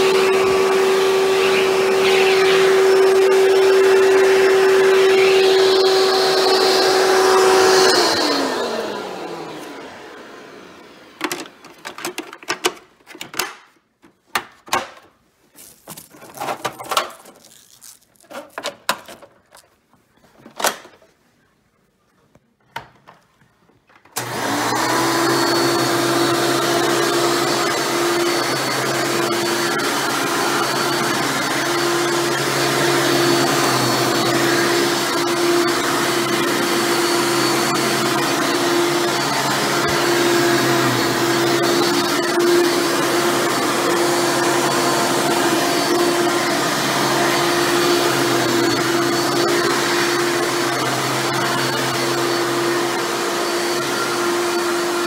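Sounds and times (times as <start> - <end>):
vacuum cleaner running: 0.0 - 12.6, 24.2 - 55.0.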